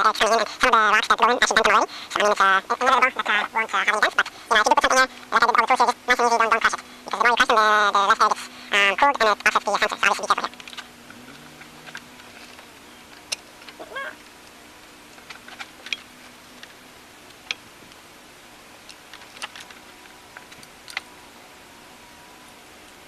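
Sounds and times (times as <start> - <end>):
tools clicking on engine parts: 10.5 - 17.6, 18.8 - 21.1.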